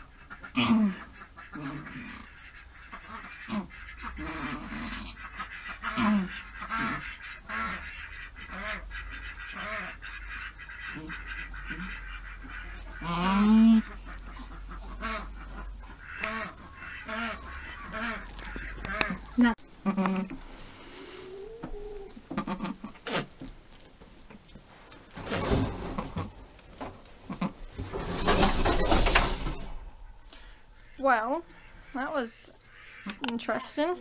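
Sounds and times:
goat bleating and groaning: 12.6 - 14.0, 16.2 - 23.4.

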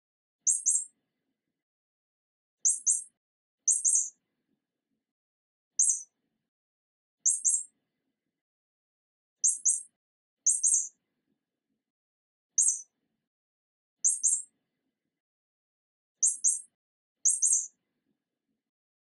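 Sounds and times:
mouse squeaks: 0.4 - 1.0, 2.6 - 4.2, 5.7 - 6.1, 7.2 - 7.8, 9.4 - 11.0, 12.5 - 12.9, 14.0 - 14.5, 16.2 - 17.8.

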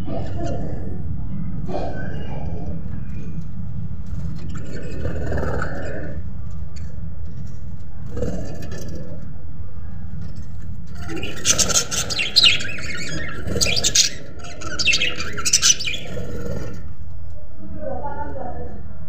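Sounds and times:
steady low hum: 0.0 - 19.0
budgerigars chirping: 11.0 - 16.8.

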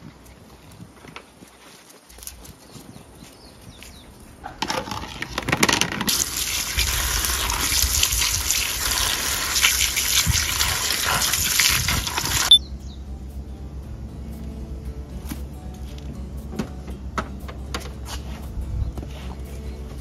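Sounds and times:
tap water splashing on fruit: 6.1 - 12.5.

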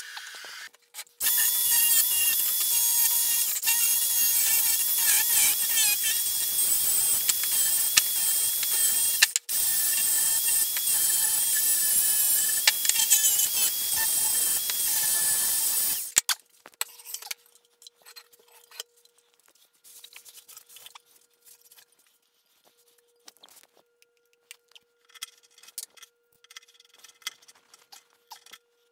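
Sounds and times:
angle grinder grinding steel: 0.0 - 16.2.

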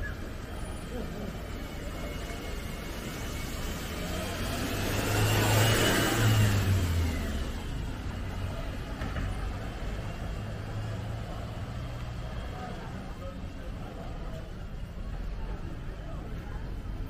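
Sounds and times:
vehicle driving past: 1.9 - 12.6.

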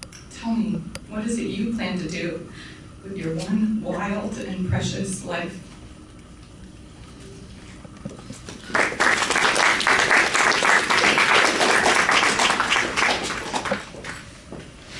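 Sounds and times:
audience applauding: 8.6 - 14.2.

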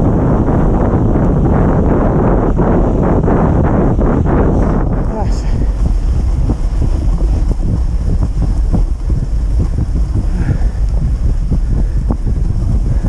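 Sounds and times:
wind buffeting microphone: 0.0 - 13.0
sled knocking and scraping on snow: 0.2 - 13.0.

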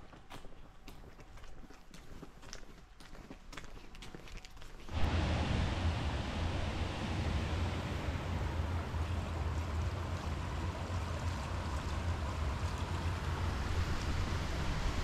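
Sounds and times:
water rushing through channel: 4.9 - 15.0
wind buffeting microphone: 4.9 - 15.0.

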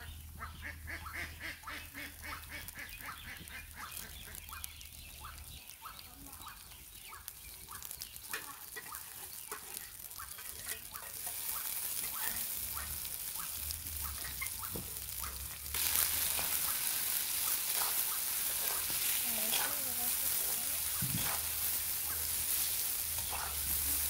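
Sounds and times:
eggs sizzling in oil: 0.0 - 24.0
crackles and pops: 1.7 - 24.0.

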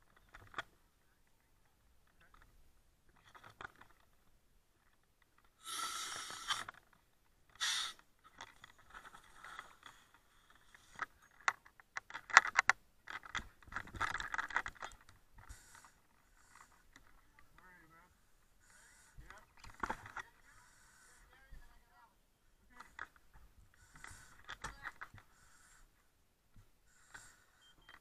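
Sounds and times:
sharp clicks and rattles: 0.0 - 0.8, 2.0 - 5.6, 6.5 - 17.8
gear clinking and rattling: 8.3 - 15.2.

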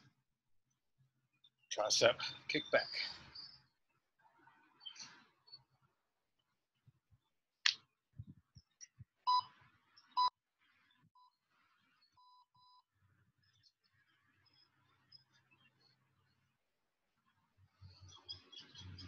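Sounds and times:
electronic timer beeps: 9.3 - 10.3, 12.1 - 12.9.

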